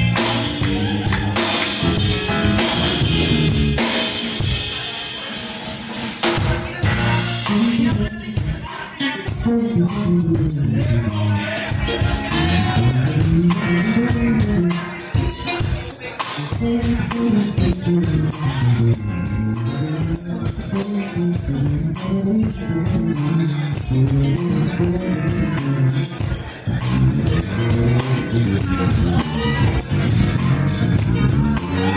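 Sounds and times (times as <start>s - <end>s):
low melodic line: 0.0s - 3.9s, 16.7s - 31.9s
electric guitars: 0.0s - 5.1s, 6.0s - 31.9s
congas: 0.0s - 31.9s
drum kit: 0.0s - 31.9s
keyboard: 0.0s - 31.9s.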